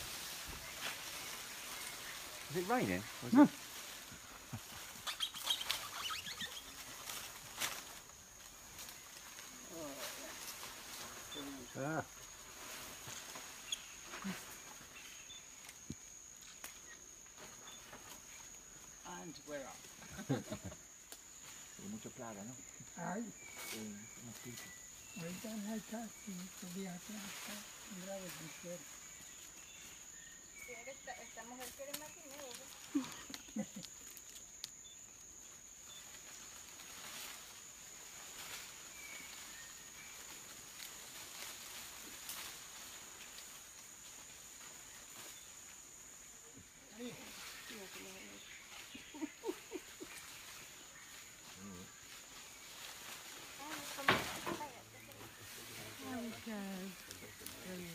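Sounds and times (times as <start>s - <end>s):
high insect drone: 0.0s - 57.9s
faint bird chirps: 4.6s - 7.8s, 13.1s - 15.8s, 21.4s - 26.7s, 27.3s - 33.9s, 46.4s - 57.9s
small clicks and rustles: 31.6s - 34.9s
soft rustling: 36.0s - 57.9s.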